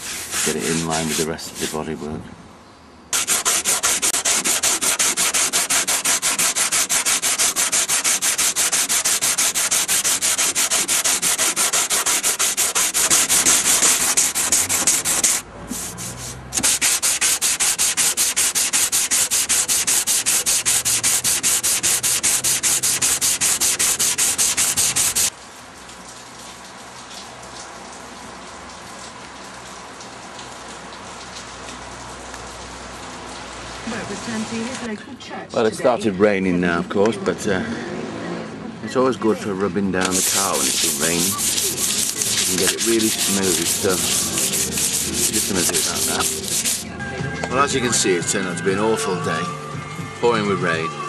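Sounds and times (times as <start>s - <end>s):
sandpaper rubbing painted metal: 0.0s - 1.9s, 3.2s - 25.3s, 40.0s - 46.9s
steady rain: 25.0s - 35.0s.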